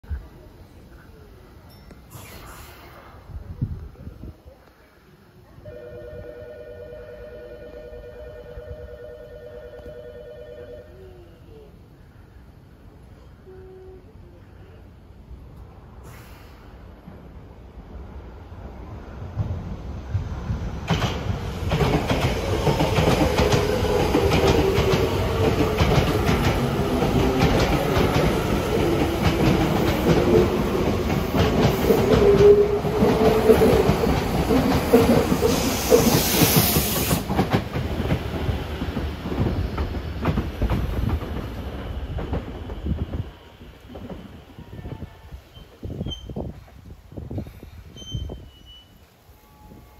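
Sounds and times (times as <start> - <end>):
brief high hiss: 2.1 - 3.3, 16.0 - 16.8, 35.4 - 37.3
train wheels clattering: 19.3 - 45.1.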